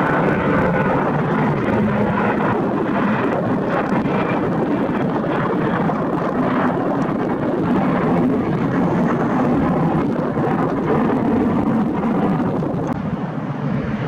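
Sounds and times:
jet engine roar: 0:00.0 - 0:14.0
wind buffeting microphone: 0:00.0 - 0:14.0.

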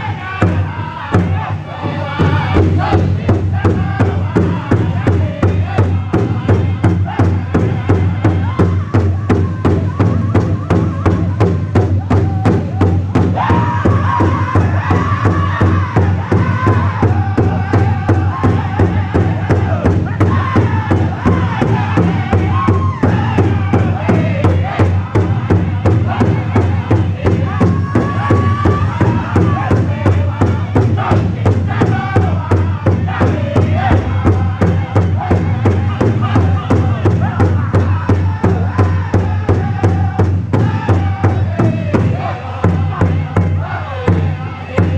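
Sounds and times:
high-pitched group singing: 0:00.0 - 0:44.9
steady drumbeat: 0:00.0 - 0:44.9.

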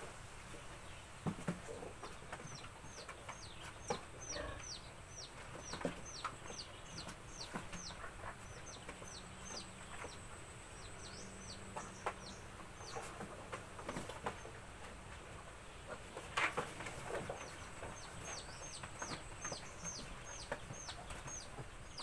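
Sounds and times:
chicks peeping: 0:00.4 - 0:22.0.

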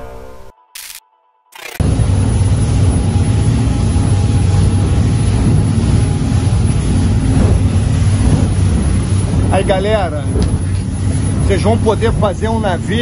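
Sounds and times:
wind: 0:00.8 - 0:13.0
boat engine low hum: 0:01.8 - 0:13.0
water wash: 0:01.9 - 0:13.0.

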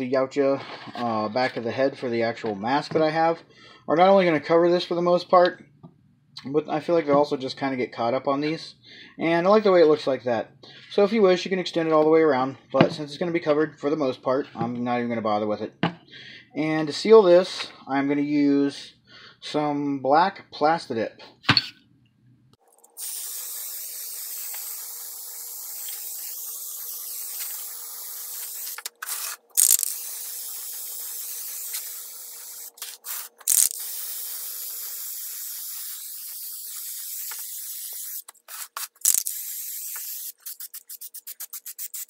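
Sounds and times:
aerosol can spraying: 0:22.9 - 0:42.0.

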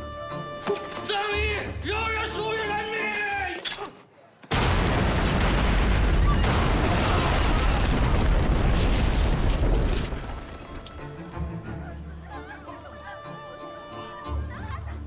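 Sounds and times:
explosion blast: 0:04.5 - 0:10.5
explosion rumble: 0:04.5 - 0:10.5.

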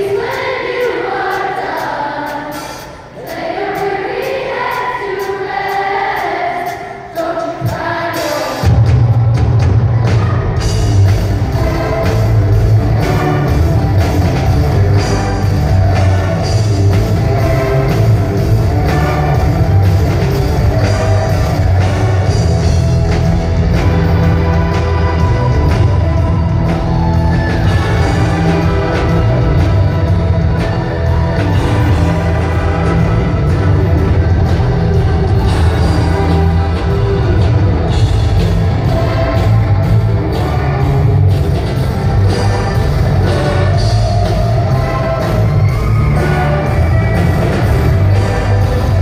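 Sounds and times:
rock band with heavy bass and drums: 0:00.0 - 0:49.0
voices singing a melody: 0:00.0 - 0:49.0
string orchestra: 0:10.0 - 0:49.0.

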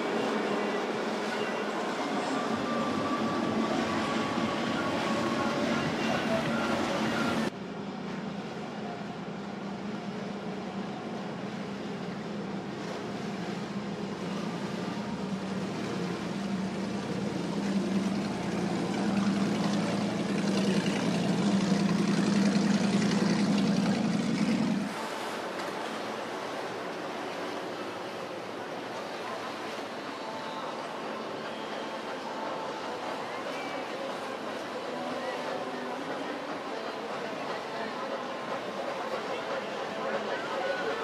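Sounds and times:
water and hull noise: 0:00.0 - 0:41.0
motorboat engine running: 0:11.4 - 0:25.4.

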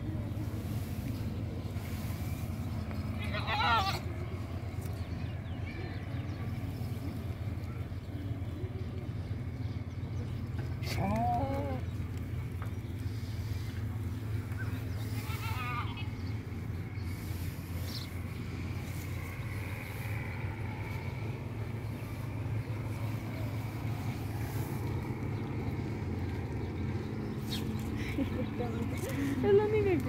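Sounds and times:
steady low rumble: 0:00.0 - 0:30.0
goat bleating: 0:03.2 - 0:04.1, 0:15.0 - 0:16.2.

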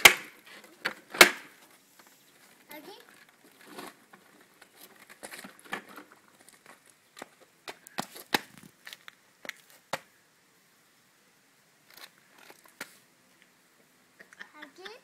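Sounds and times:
child's footsteps on gravel: 0:02.3 - 0:09.9.

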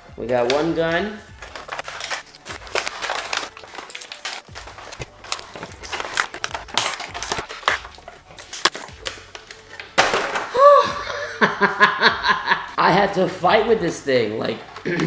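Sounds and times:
plastic packaging crinkling: 0:01.3 - 0:10.4
person exclaiming: 0:10.5 - 0:11.1.

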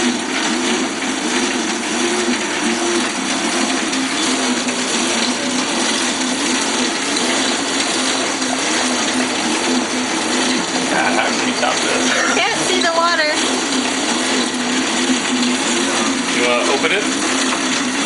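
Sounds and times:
bicycle generator whirring: 0:00.0 - 0:18.0.

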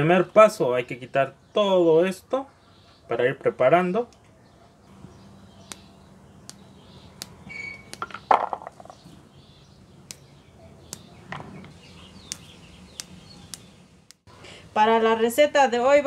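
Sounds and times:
flower buds snapping: 0:05.6 - 0:09.0, 0:10.0 - 0:11.2, 0:12.2 - 0:14.2.

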